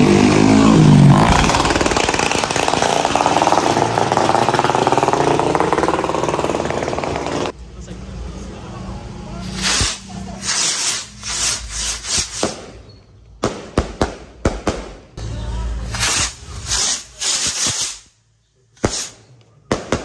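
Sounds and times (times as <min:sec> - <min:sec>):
fireworks hissing crackle: 0:09.4 - 0:12.9, 0:15.8 - 0:18.2, 0:18.8 - 0:19.2
firecrackers popping: 0:09.4 - 0:15.1, 0:15.8 - 0:18.1, 0:18.8 - 0:20.0.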